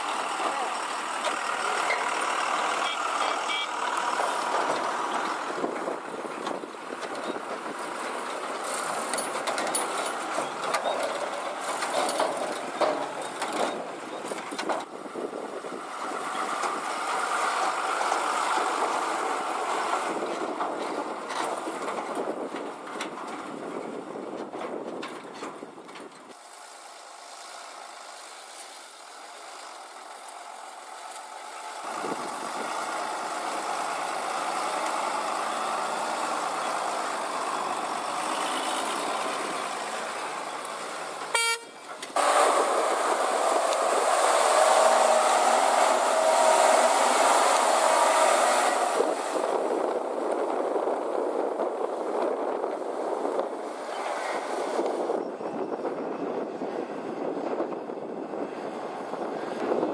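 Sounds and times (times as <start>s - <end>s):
diesel lorries running: 0.0s - 59.9s
horn toot: 41.3s - 42.4s.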